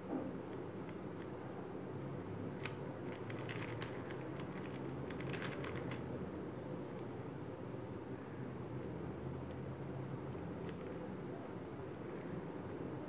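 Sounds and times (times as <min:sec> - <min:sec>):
puzzle cube clicking: 0:02.6 - 0:06.0.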